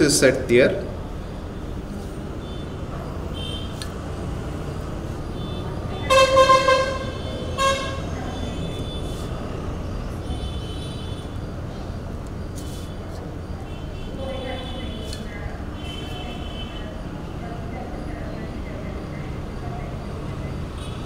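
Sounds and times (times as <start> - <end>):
vehicle horn honking: 2.4 - 3.8, 5.3 - 9.4, 10.2 - 11.4, 13.6 - 15.2, 15.8 - 16.9.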